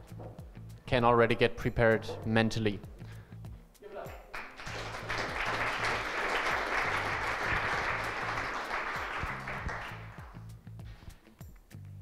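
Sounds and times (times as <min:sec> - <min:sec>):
audience applauding: 0:04.3 - 0:10.4.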